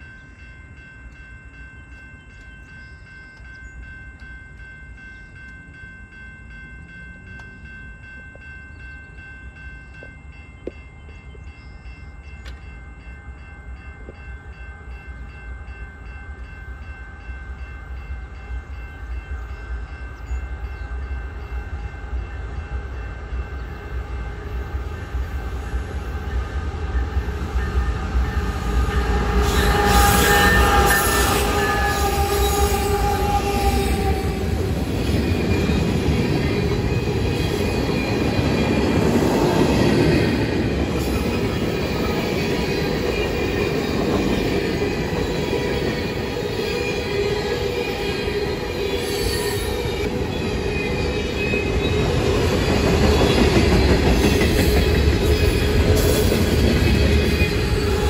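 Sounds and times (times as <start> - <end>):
freight train approaching: 0.0 - 58.0
level-crossing bell ringing: 0.0 - 58.0
train wheels squealing: 23.4 - 58.0
train horn: 26.2 - 34.8.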